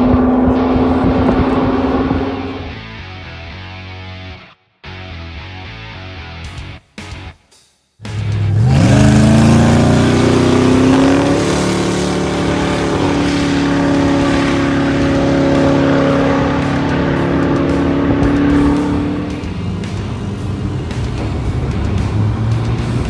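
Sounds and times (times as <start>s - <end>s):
car engine accelerating hard: 0.0s - 3.3s, 8.1s - 23.0s.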